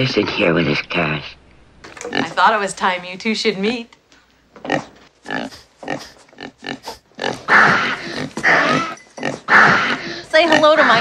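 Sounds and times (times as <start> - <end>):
pig grunting: 2.0 - 2.4, 4.6 - 11.0
pig crying: 4.7 - 11.0.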